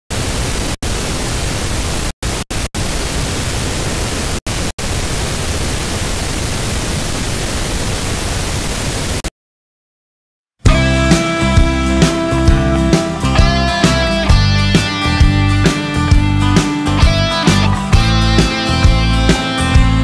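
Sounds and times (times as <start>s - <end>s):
television static hiss: 0.1s - 9.3s.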